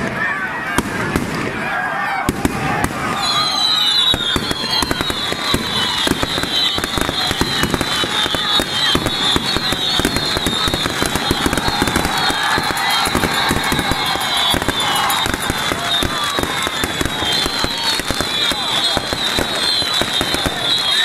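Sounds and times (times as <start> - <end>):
crowd voices: 0.0 - 21.0
firecrackers crackling: 0.0 - 21.0
high whistling tone: 3.1 - 21.0.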